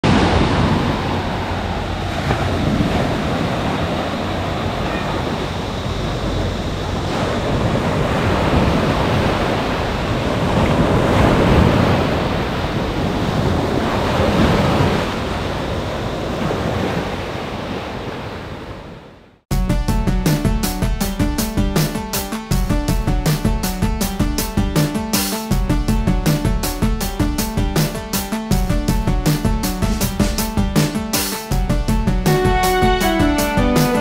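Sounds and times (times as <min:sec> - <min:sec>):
sea waves washing onto shore: 0:00.0 - 0:19.0.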